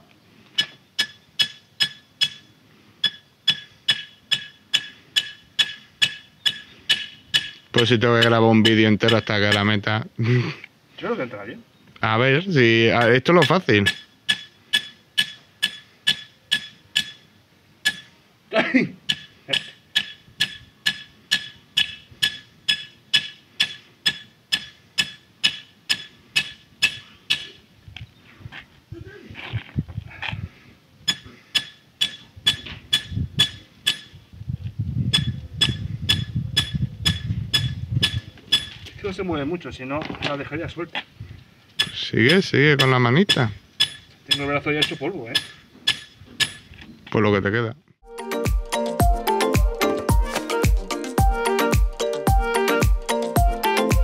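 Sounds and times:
hammer striking metal rod: 0:00.6 - 0:09.8, 0:13.0 - 0:18.2, 0:19.1 - 0:27.6, 0:31.1 - 0:34.2, 0:35.2 - 0:38.8, 0:41.8 - 0:46.7.

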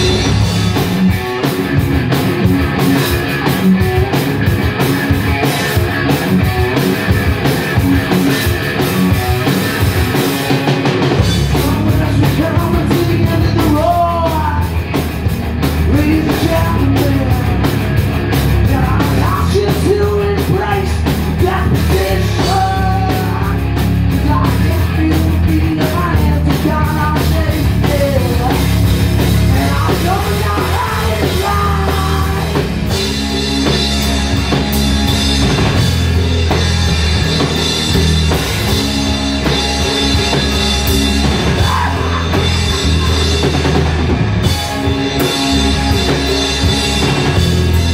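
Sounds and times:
bass guitar: 0:00.0 - 0:47.9
drum kit: 0:00.0 - 0:47.9
electric guitar: 0:00.0 - 0:47.9
person singing: 0:11.5 - 0:14.8, 0:15.9 - 0:17.6, 0:18.6 - 0:23.6, 0:29.5 - 0:32.7, 0:40.4 - 0:43.6.

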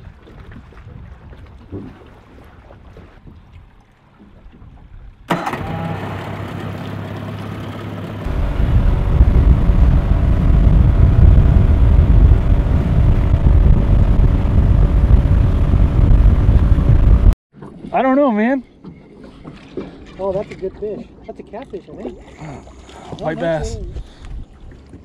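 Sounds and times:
outboard motor running: 0:05.2 - 0:17.4.

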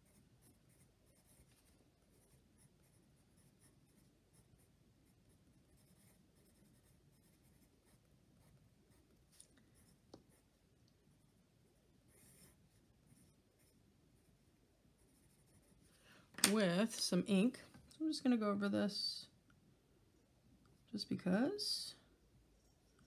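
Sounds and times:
pencil scratching on paper: 0:00.0 - 0:09.1, 0:12.1 - 0:13.8, 0:15.0 - 0:15.9.

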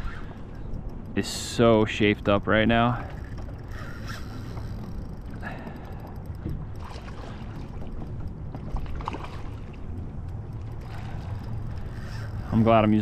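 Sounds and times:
faint clicks: 0:00.0 - 0:12.6
wind buffeting microphone: 0:00.0 - 0:13.0
water splashing against boat hull: 0:05.6 - 0:13.0.

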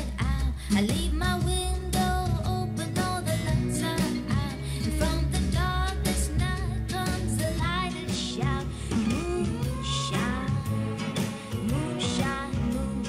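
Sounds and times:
guitar: 0:00.0 - 0:13.0
woman singing pop song: 0:00.0 - 0:13.0.

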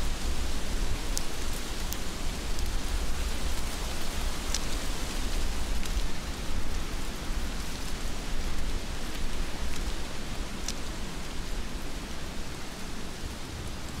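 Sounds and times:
heavy rain falling: 0:00.0 - 0:14.0.

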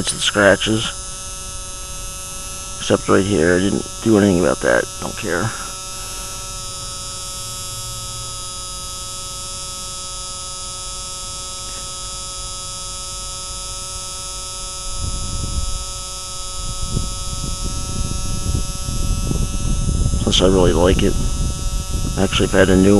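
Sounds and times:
low rumbling noise: 0:00.0 - 0:09.6, 0:14.8 - 0:22.9
steady electrical hum: 0:00.0 - 0:22.9.

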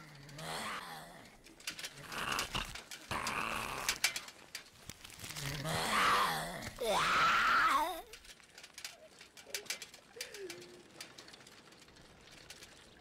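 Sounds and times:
zombie growling: 0:00.3 - 0:01.3, 0:01.9 - 0:04.2, 0:05.4 - 0:08.1.

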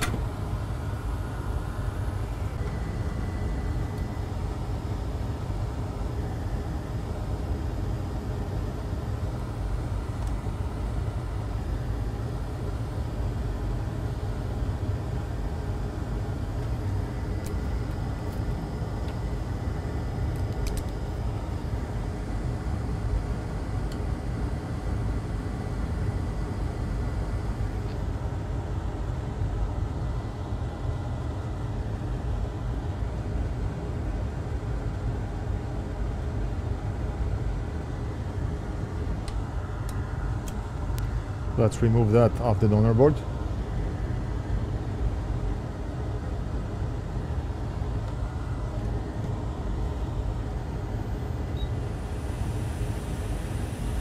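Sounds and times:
faint thin whine: 0:00.0 - 0:28.1, 0:47.0 - 0:54.0.

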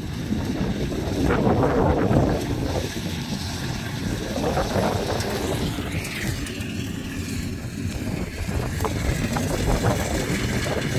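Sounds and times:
distant combine harvester engine: 0:00.0 - 0:10.9
wind rumbling on microphone: 0:00.0 - 0:10.9.

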